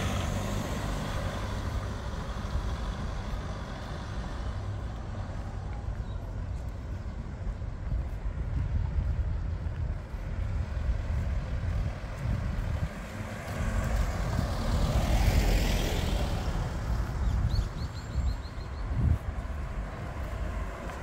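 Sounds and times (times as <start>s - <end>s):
traffic rumble: 0.0s - 21.0s
vehicle passing close: 12.4s - 17.5s.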